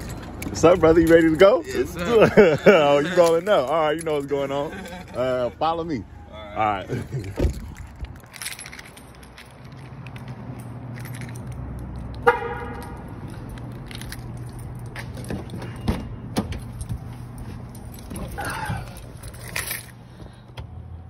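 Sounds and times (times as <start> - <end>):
car horn chirp: 12.2 - 13.0.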